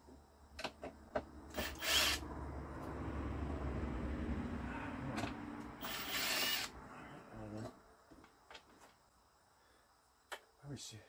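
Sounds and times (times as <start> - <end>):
loud scrape: 5.8 - 6.7.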